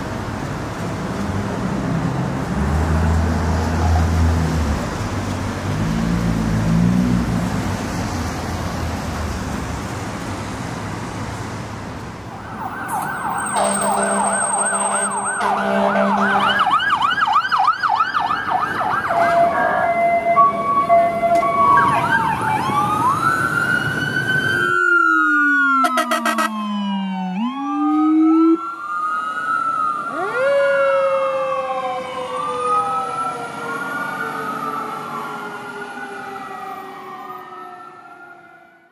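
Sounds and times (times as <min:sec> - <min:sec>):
electronic siren yelping: 0:12.3 - 0:23.5, 0:24.5 - 0:31.4
siren falling in pitch: 0:12.3 - 0:38.7
horn blasts: 0:13.4 - 0:16.8, 0:25.8 - 0:26.6.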